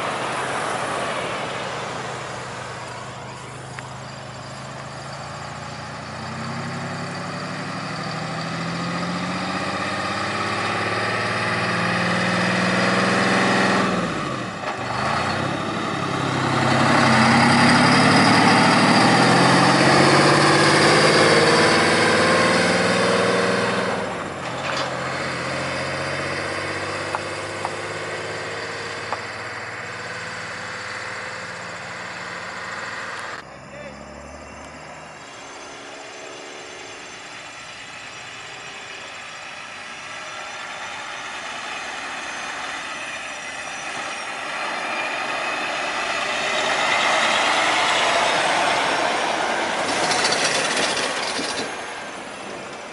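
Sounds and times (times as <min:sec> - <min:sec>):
truck diesel engine passing: 0:00.0 - 0:52.9
gear shifts: 0:46.1 - 0:51.9.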